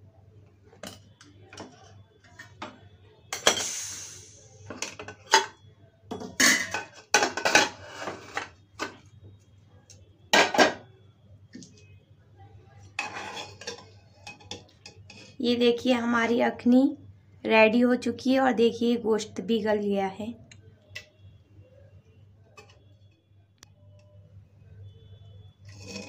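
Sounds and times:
pressure cooker hiss: 3.4 - 4.7
metal lid clanking and scraping: 6.2 - 9.0, 13.0 - 14.6, 25.7 - 26.0.

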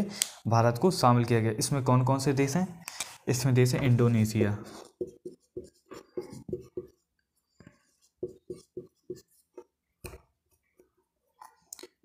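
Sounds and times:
pen scratching while writing: 4.7 - 10.6.

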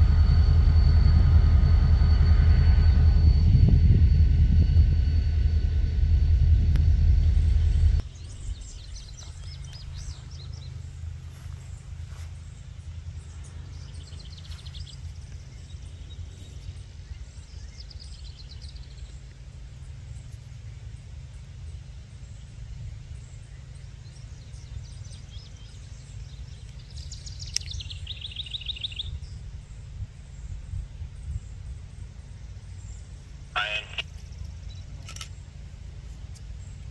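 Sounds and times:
diesel locomotive rumble: 0.0 - 28.8
steady low rumble: 0.0 - 36.9
birds chirping in trills: 31.9 - 35.5.

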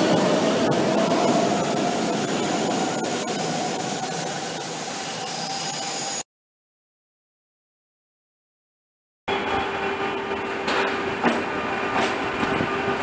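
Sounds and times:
metro train accelerating: 0.0 - 6.3, 9.3 - 13.0.

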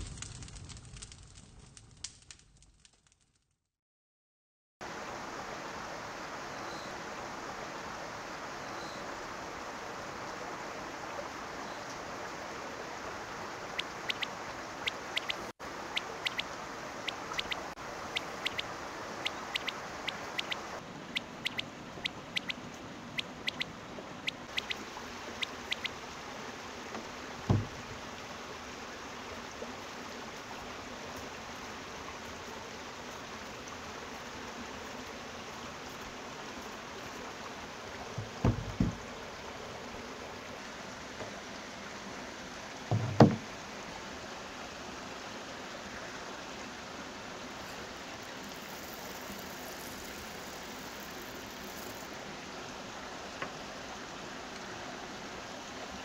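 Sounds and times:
steady background hiss: 4.8 - 56.0
dull knocks on wood: 27.5 - 27.8, 38.2 - 39.0, 42.9 - 43.4.

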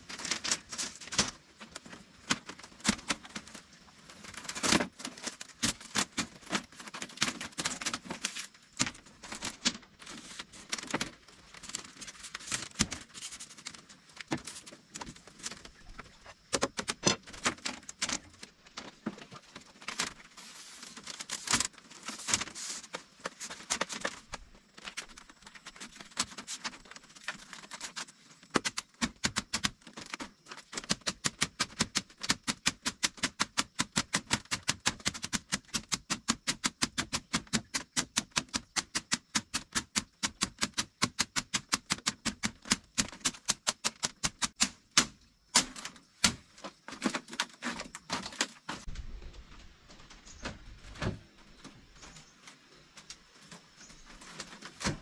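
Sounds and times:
sharp irregular knocks and clicks: 16.4 - 18.3, 28.5 - 48.6.

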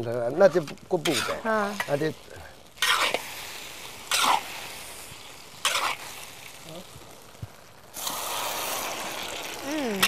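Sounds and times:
food sizzling in a wok: 0.0 - 10.0
metal ladle scraping wok: 0.5 - 2.1, 2.8 - 6.6.

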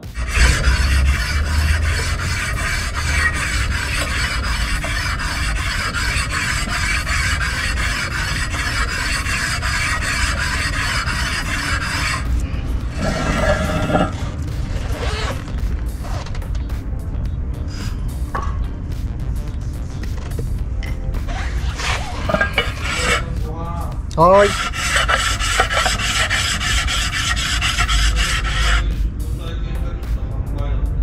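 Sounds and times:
rasping scrape: 0.0 - 16.5, 21.2 - 23.4, 24.2 - 29.0.

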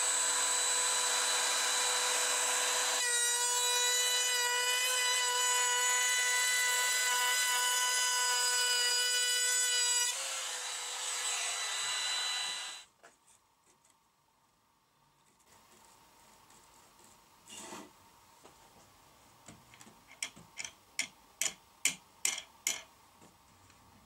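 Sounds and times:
router whining and cutting wood: 0.0 - 12.9.

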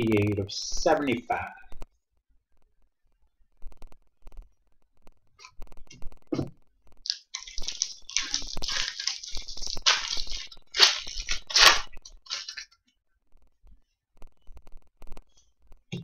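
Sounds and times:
foil wrapper crinkling: 7.0 - 12.8.

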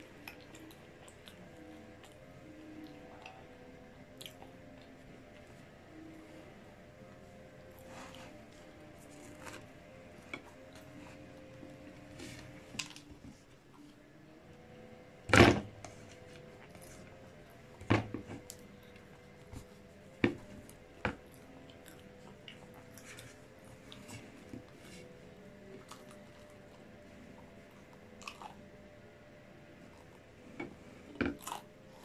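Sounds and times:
tortilla wrap rustling: 7.4 - 13.3.

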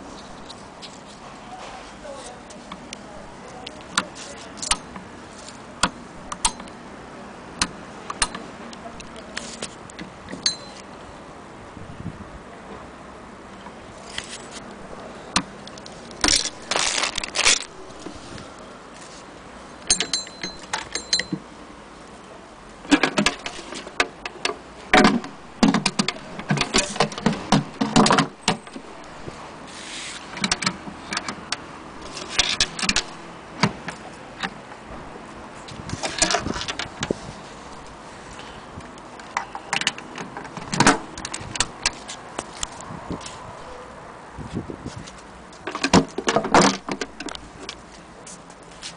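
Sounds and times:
wooden case cover clicking and rattling: 22.9 - 28.9.

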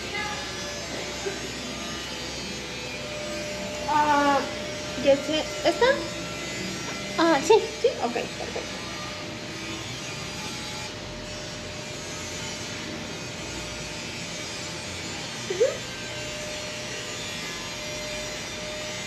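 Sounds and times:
mechanical whirring hum: 0.0 - 19.0.

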